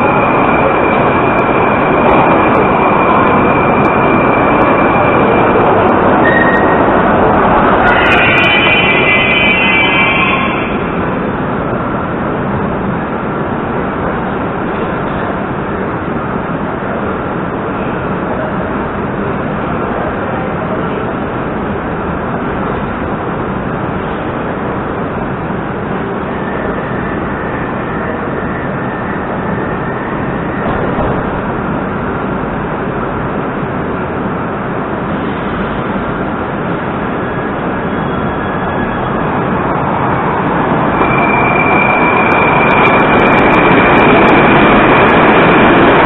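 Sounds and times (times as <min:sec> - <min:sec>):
train pulling away: 0:00.0 - 0:12.3, 0:12.9 - 0:46.0
electric train humming: 0:00.0 - 0:46.0.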